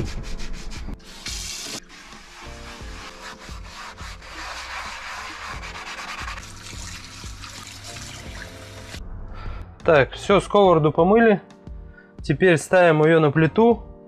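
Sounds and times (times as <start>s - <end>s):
sponge scrubbing frying pan: 0.0s - 9.0s
tap water running onto pan: 5.2s - 9.0s.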